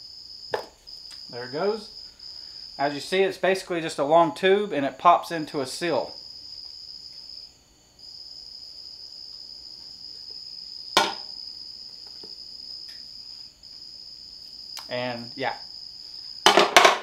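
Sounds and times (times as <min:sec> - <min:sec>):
cricket trilling: 0:00.0 - 0:17.0
metal part knocked down: 0:11.0 - 0:11.3, 0:16.5 - 0:17.0.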